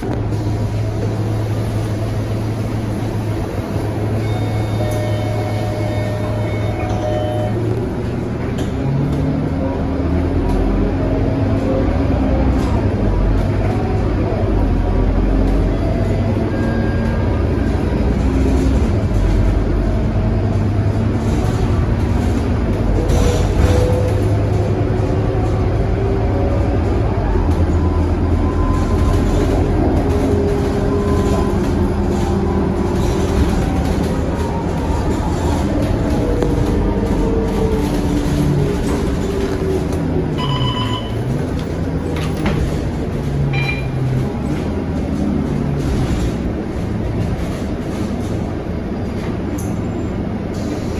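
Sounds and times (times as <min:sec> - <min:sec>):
bus diesel engine running: 0:00.0 - 0:50.9
road and tyre rumble: 0:00.0 - 0:50.9
short electronic beeps: 0:04.2 - 0:07.6, 0:40.4 - 0:41.3, 0:43.5 - 0:44.0.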